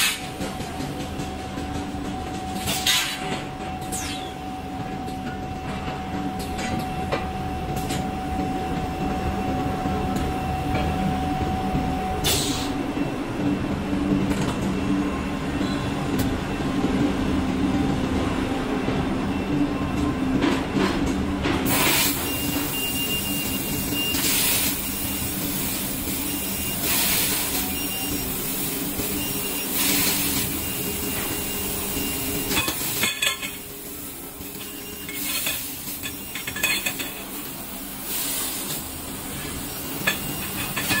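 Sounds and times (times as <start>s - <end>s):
machine drone: 0.0s - 18.2s.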